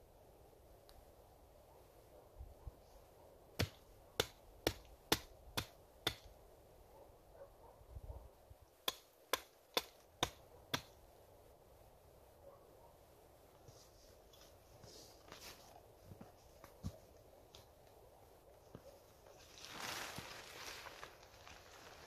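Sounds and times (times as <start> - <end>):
hatchet chopping wood: 3.6 - 6.3, 8.8 - 10.9.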